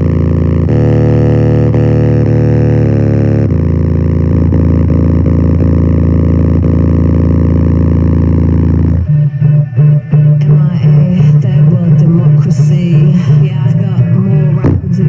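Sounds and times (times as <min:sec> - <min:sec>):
choppy pulsing bass line: 0:00.0 - 0:15.0
deep sustained bass drone: 0:00.0 - 0:15.0
faint beat ticks: 0:00.0 - 0:15.0.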